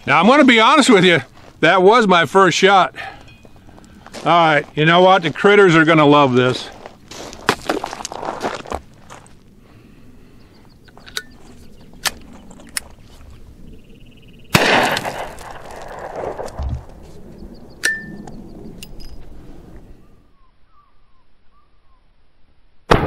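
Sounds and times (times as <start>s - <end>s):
gun action metallic clicks: 10.9s - 11.4s, 12.0s - 13.0s
pistol shot echoing: 14.5s - 16.6s.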